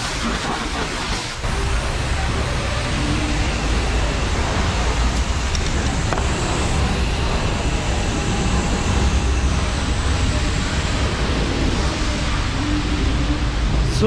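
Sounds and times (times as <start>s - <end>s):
high-pressure water rushing: 0.0s - 14.0s.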